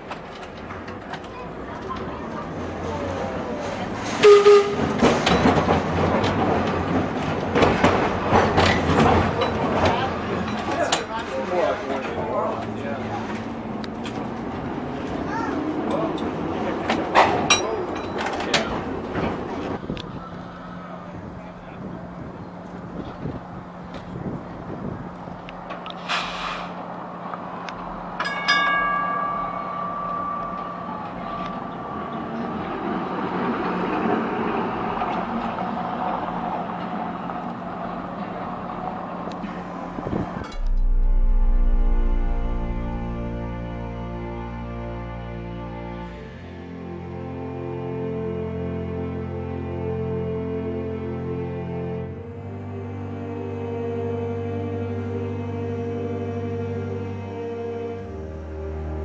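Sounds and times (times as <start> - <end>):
streetcar rumbling on track: 0.0 - 59.0
short hiss: 26.0 - 26.8
short steady tone: 40.5 - 44.3.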